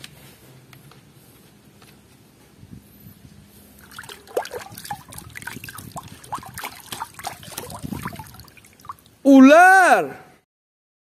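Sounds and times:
hand splashing in water: 0:03.8 - 0:09.2
water drips and plops: 0:03.8 - 0:09.2.

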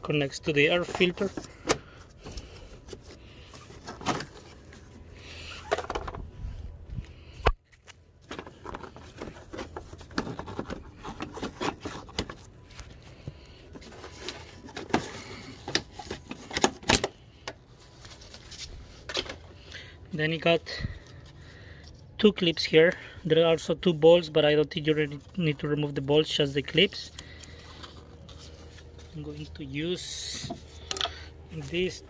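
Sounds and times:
plastic parts clicking and scraping: 0:00.6 - 0:04.8, 0:05.5 - 0:06.3, 0:07.4 - 0:17.6, 0:30.1 - 0:32.0.

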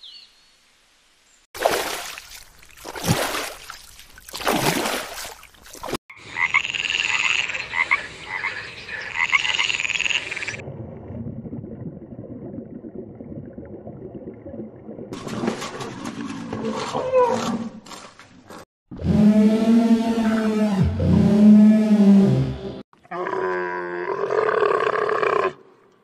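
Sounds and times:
frog croaking: 0:06.1 - 0:10.6.

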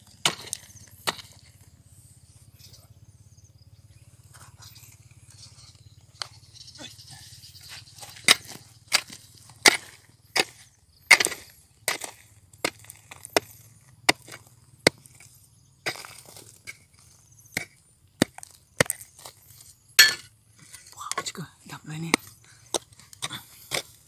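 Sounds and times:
digging tool striking rock: 0:00.0 - 0:01.6, 0:07.7 - 0:24.0.

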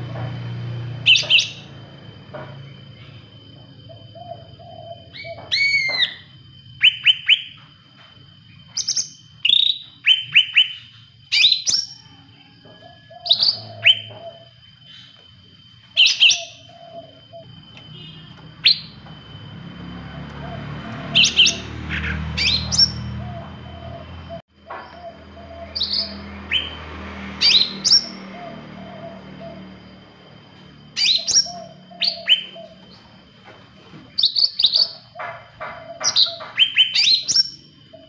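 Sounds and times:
bird whistling and chirping: 0:01.0 - 0:01.7, 0:03.8 - 0:07.6, 0:08.7 - 0:12.0, 0:13.0 - 0:15.1, 0:16.0 - 0:19.0, 0:21.1 - 0:24.1, 0:25.0 - 0:26.8, 0:27.4 - 0:29.6, 0:31.0 - 0:33.0, 0:34.2 - 0:35.1, 0:35.9 - 0:38.0.

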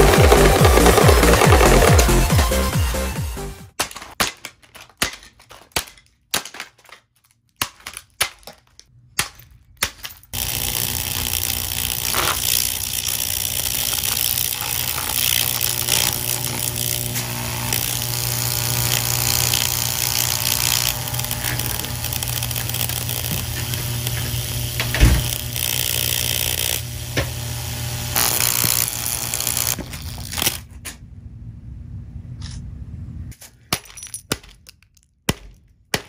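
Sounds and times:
power tool buzzing hum: 0:10.4 - 0:30.6.

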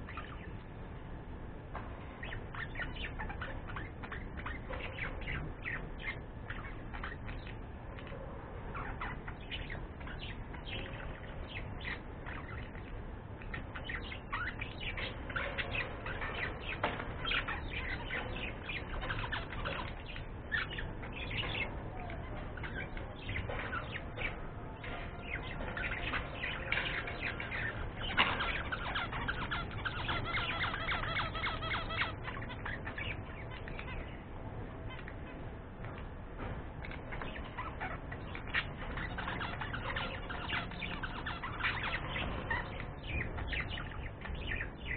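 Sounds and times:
budgerigars chattering: 0:00.0 - 0:00.5, 0:02.2 - 0:34.3, 0:36.8 - 0:44.9.

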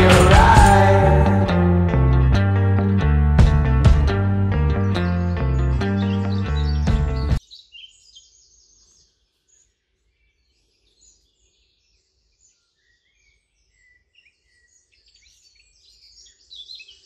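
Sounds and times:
small birds chirping: 0:04.8 - 0:17.0.

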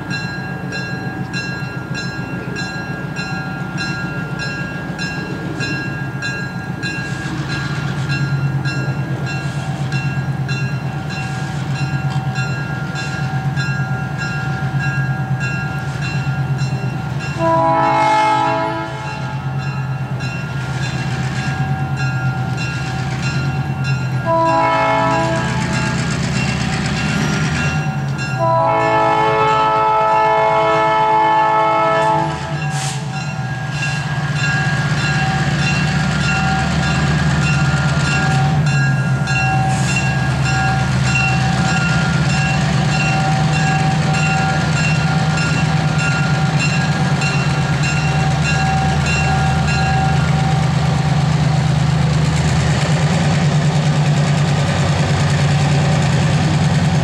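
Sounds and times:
locomotive bell ringing: 0:00.0 - 0:52.6
train rumbling by: 0:00.0 - 0:57.0
locomotive air horn: 0:17.4 - 0:19.5, 0:24.2 - 0:25.9, 0:28.4 - 0:33.2.

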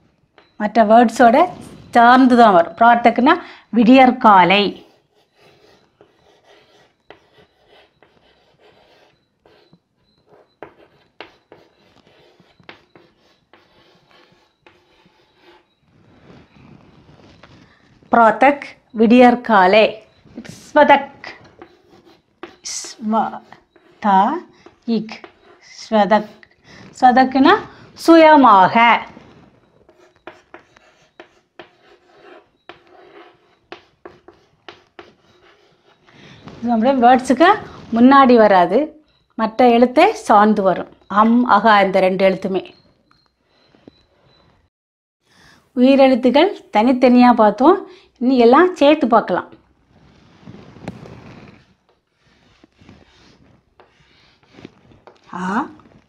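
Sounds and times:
chalk scratching on blackboard: 0:04.4 - 0:17.6, 0:20.0 - 0:38.7, 0:49.9 - 0:56.0
chalk tapping on board: 0:04.8 - 0:15.6, 0:21.4 - 0:24.0, 0:29.9 - 0:36.0.

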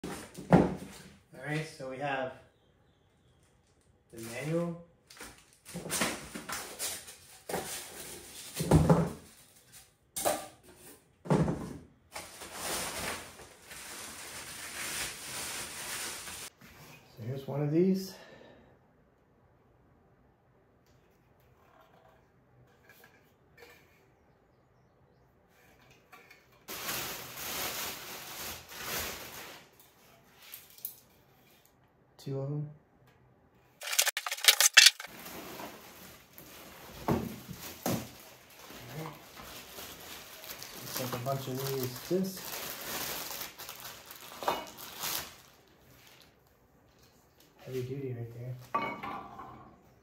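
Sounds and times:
plastic wrap rustling: 0:04.2 - 0:10.0, 0:12.1 - 0:16.5, 0:26.7 - 0:30.9, 0:33.8 - 0:46.5
styrofoam scraping: 0:33.8 - 0:40.0.

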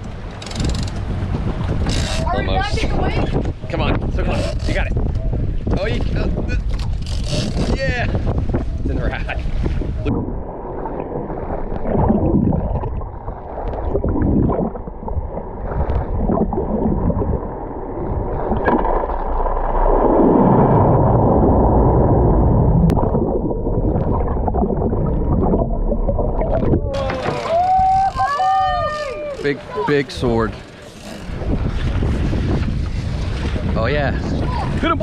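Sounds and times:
low rumble: 0:02.6 - 0:29.1
water rushing underwater: 0:08.5 - 0:28.0.

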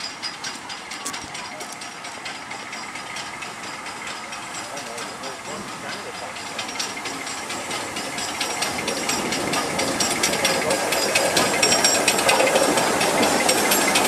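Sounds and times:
steam hissing: 0:00.0 - 0:14.0
steam locomotive metallic clatter: 0:00.0 - 0:14.0.

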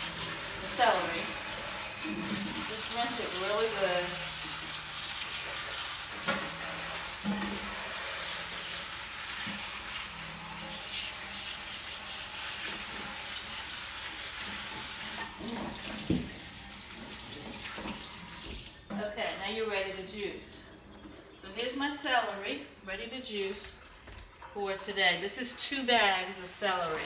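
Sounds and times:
tap running into metal sink: 0:14.5 - 0:18.7.

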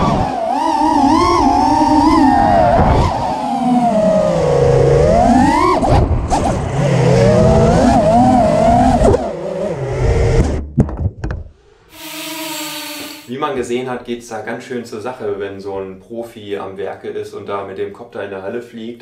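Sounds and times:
quadcopter motors whining: 0:00.0 - 0:10.4, 0:11.9 - 0:13.3
steady tone with hiss: 0:11.6 - 0:13.5.

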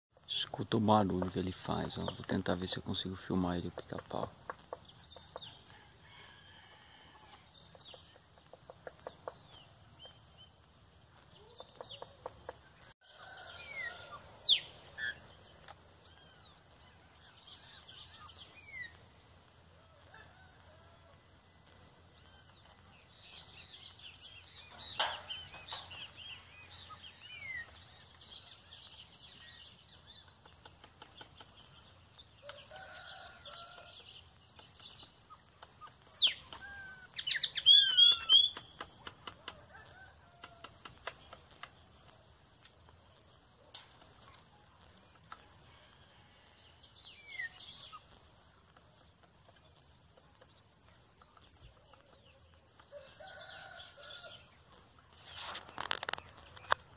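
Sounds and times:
birds chirping: 0:00.1 - 0:56.9.

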